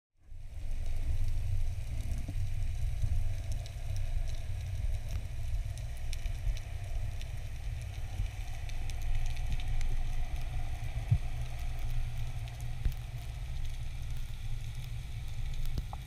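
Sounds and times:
underwater water rumble: 0.3 - 16.0
faint crackling clicks: 0.5 - 16.0.

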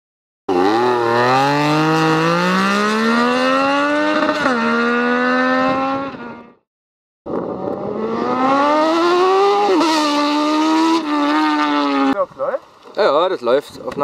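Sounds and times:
motorcycle engine accelerating: 0.5 - 6.6, 7.3 - 12.2.

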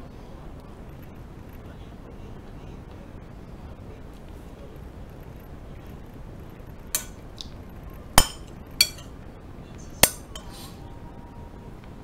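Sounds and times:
metal spoon clinking on plate: 7.0 - 7.2, 8.2 - 9.1, 9.8 - 10.6.

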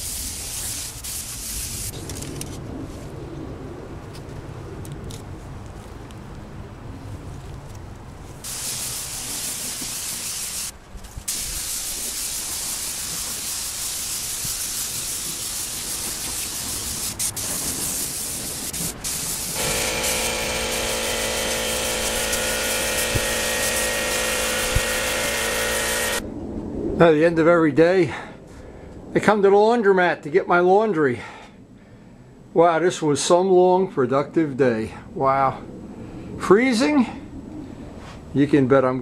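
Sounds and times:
spray gun hissing: 0.0 - 2.0, 8.4 - 26.2
droning hum: 18.6 - 26.9.

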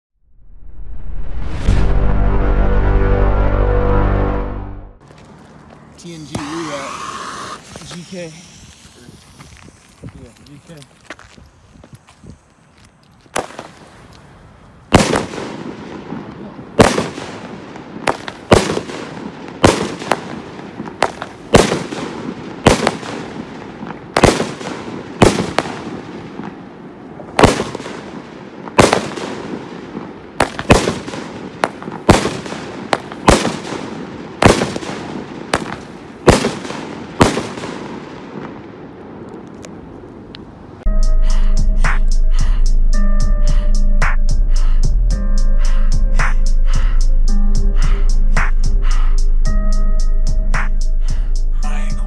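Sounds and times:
firework bangs with echo: 13.3 - 13.9, 14.9 - 38.9.

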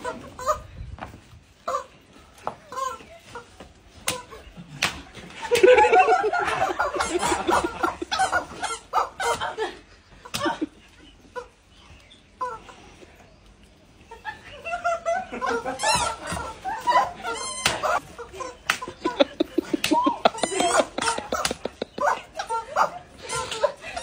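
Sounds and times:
sharp smacks: 4.0 - 5.7, 18.6 - 18.9
women laughing: 5.3 - 11.5, 14.0 - 24.0.

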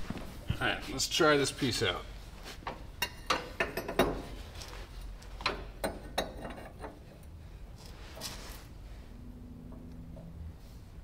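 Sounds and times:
metal pipe clinking and knocking: 2.7 - 4.4, 5.4 - 7.1.

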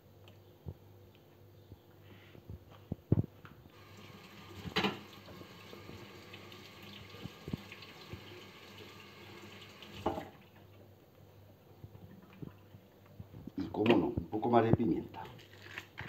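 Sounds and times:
tap running into steel sink: 4.6 - 5.5, 10.0 - 10.3.

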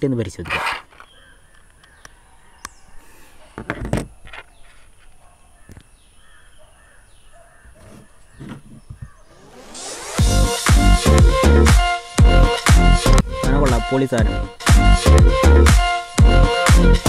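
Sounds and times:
faint outdoor background: 0.0 - 17.0
earphones handling knocks and rustles: 3.5 - 5.9, 7.7 - 9.2.

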